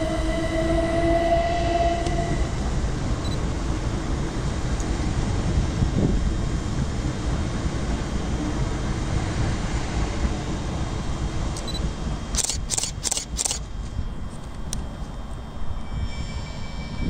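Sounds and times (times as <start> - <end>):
camera shutter clicks: 12.4 - 13.6.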